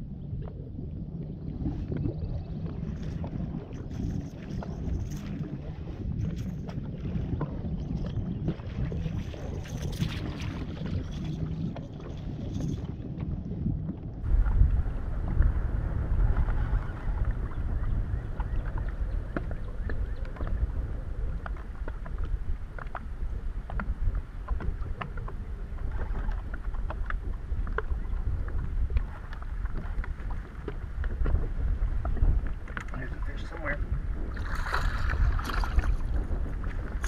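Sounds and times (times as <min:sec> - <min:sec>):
waves lapping against boat hull: 0:00.0 - 0:37.0
wind rumbling on microphone: 0:00.0 - 0:37.0.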